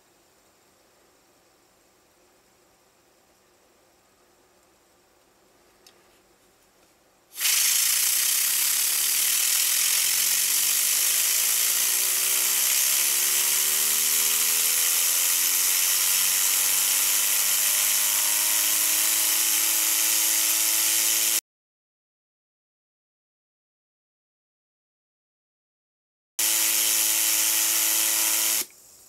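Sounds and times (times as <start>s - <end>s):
fidget spinner whirring: 7.4s - 21.4s.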